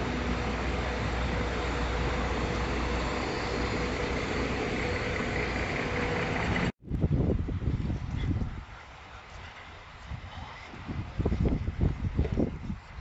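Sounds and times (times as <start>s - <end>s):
vehicle engines running: 0.0s - 6.8s
low steady hum: 0.0s - 8.0s.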